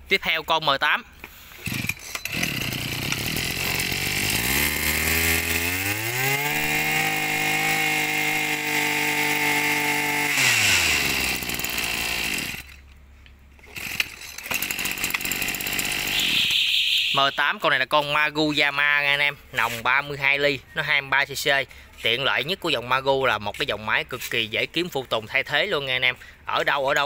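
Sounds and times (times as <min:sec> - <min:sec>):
brush cutter engine revving: 0:01.6 - 0:12.8, 0:13.6 - 0:16.6.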